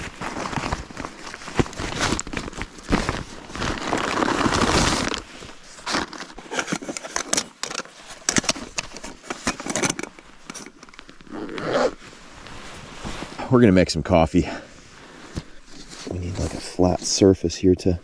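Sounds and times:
fabric rustling: 0.0s - 6.5s, 7.9s - 13.5s
paper bag crinkling: 0.0s - 7.6s.

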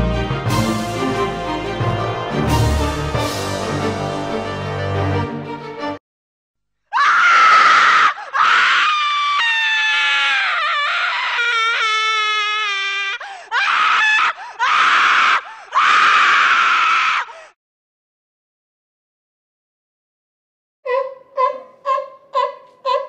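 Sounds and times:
person screaming: 6.9s - 17.5s.

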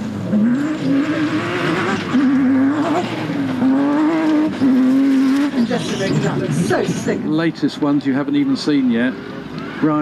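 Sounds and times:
racing car engine revving: 0.0s - 7.2s.

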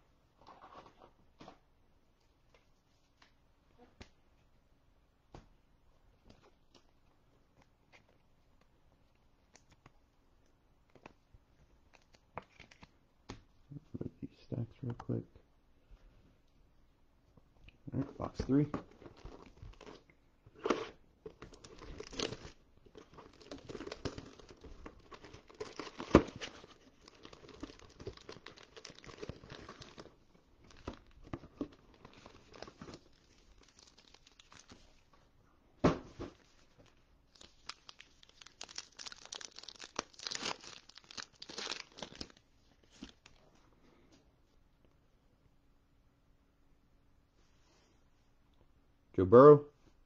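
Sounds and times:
plastic shrink wrap crackling: 21.3s - 35.1s, 37.3s - 43.4s
wrappers crinkling: 21.4s - 35.1s, 36.8s - 43.4s.

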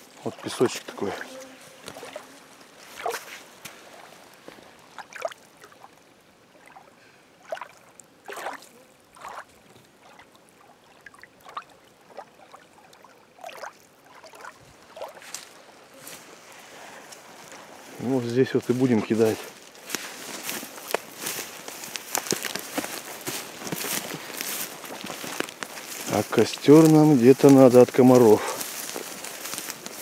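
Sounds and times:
footsteps crunching on sand: 0.0s - 5.3s, 14.3s - 30.0s.

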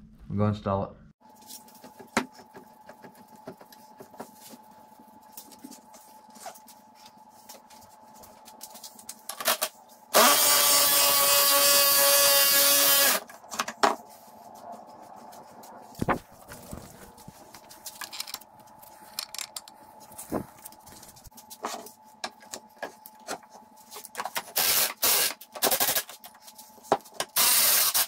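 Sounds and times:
power tool motor running: 10.1s - 13.2s, 24.6s - 26.0s, 27.4s - 28.0s.

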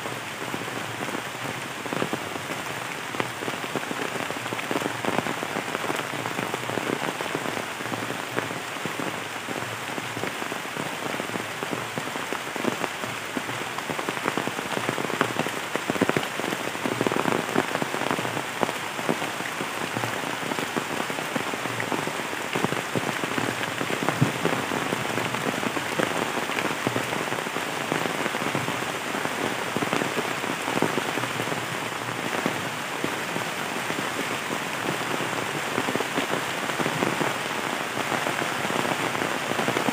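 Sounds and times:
heavy rain hissing: 0.0s - 39.9s
raindrops ticking on leaves: 0.0s - 39.9s.

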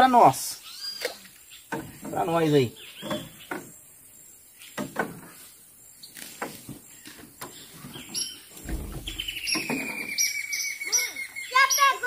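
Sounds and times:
birds chirping: 0.0s - 12.0s
long falling bird call: 8.9s - 12.0s.

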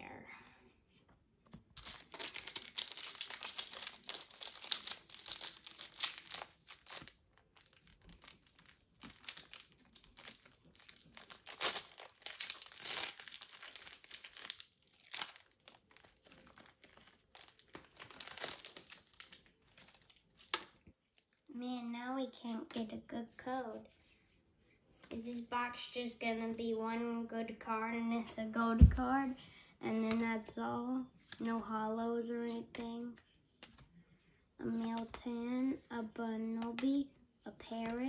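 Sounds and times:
foil wrapper crinkling and tearing: 1.8s - 20.6s.

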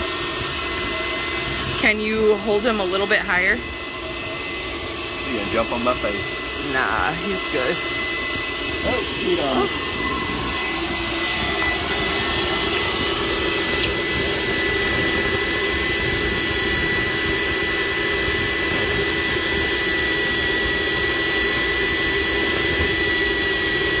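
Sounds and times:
pumps humming and hissing: 0.0s - 24.0s.

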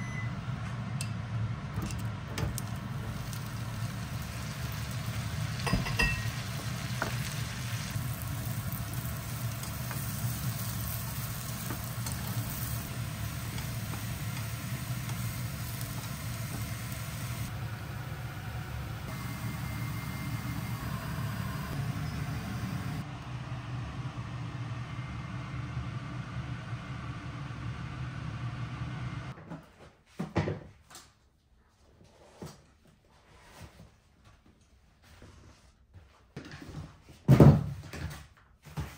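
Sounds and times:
slices sizzling in oil: 2.5s - 17.6s.

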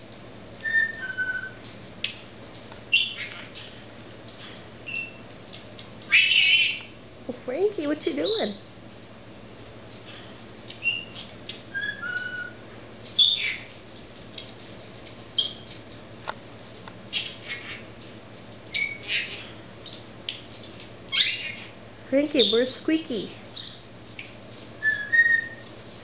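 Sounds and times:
parrot chirping and squawking: 2.9s - 7.0s, 7.7s - 8.7s, 9.9s - 24.2s.

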